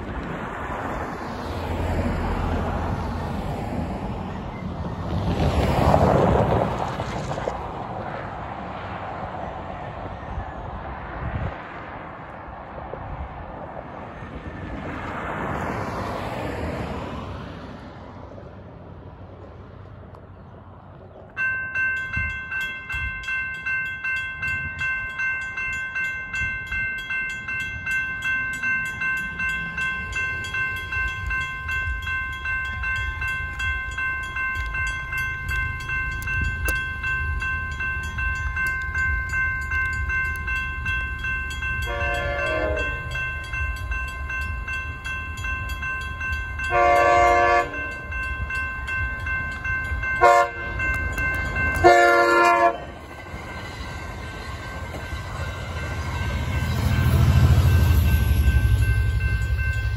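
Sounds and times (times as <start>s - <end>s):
vehicle passing: 0.0s - 21.1s
railroad crossing bell ringing: 21.3s - 59.9s
distant train horn blast: 41.8s - 43.2s, 46.6s - 48.0s, 50.2s - 50.9s, 51.8s - 53.0s.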